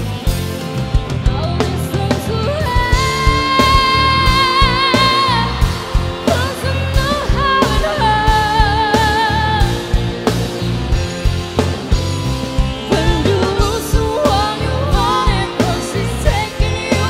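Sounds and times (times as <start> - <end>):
band playing: 0.0 - 17.0
steady drum beat: 0.0 - 17.0
woman singing pop ballad: 1.2 - 10.2, 12.8 - 17.0.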